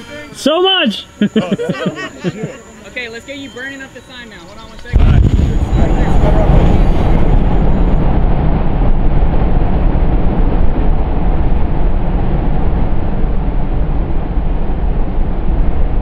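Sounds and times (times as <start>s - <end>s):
flamethrower flame roaring: 4.9s - 16.0s.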